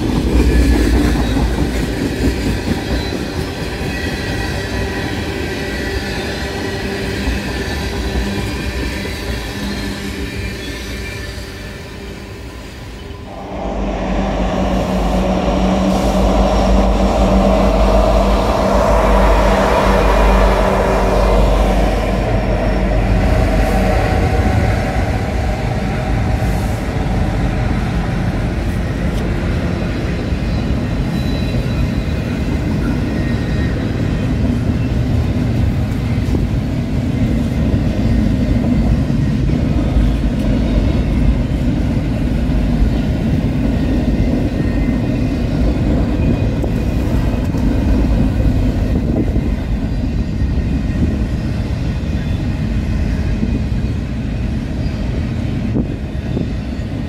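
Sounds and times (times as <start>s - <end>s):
diesel locomotive engine hum: 0.0s - 57.0s
train cars rolling rumble: 0.0s - 57.0s.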